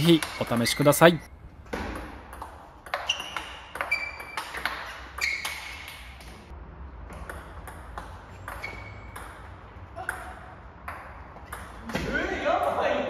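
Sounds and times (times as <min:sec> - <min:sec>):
ping pong ball hitting bats: 0:00.0 - 0:01.0, 0:01.7 - 0:13.0
ping pong ball bouncing on table: 0:01.9 - 0:04.8, 0:07.2 - 0:12.8.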